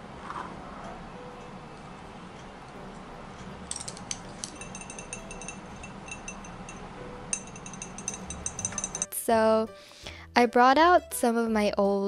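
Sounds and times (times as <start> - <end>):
low room hum: 0.0 - 9.5
glass jar clinking: 3.7 - 9.1.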